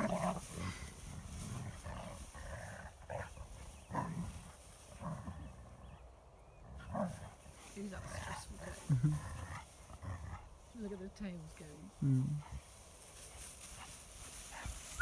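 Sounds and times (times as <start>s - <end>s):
dogs growling in play: 0.0s - 11.0s.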